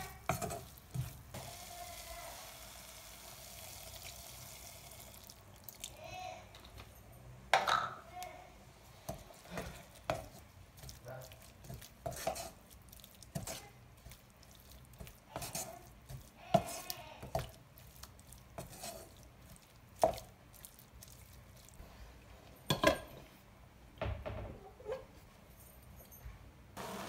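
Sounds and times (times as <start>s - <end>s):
spatula scraping wok: 0.0s - 2.7s, 9.0s - 20.4s.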